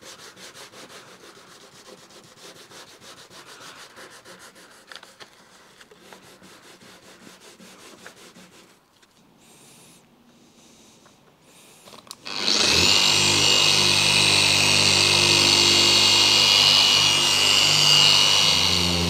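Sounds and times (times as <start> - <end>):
sandpaper rubbing on paint: 0.0 - 8.9.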